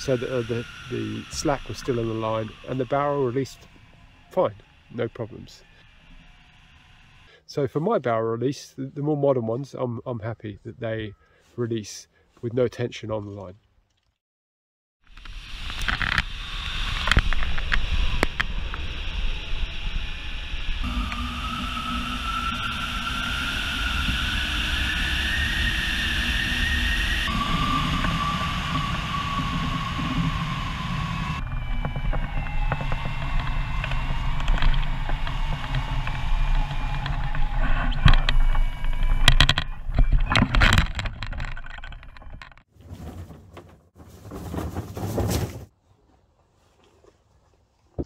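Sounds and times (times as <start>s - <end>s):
thin rising tone: 15.3s - 40.5s
wind rushing over microphone: 15.4s - 40.6s
knocks and thumps of glider: 27.3s - 45.7s.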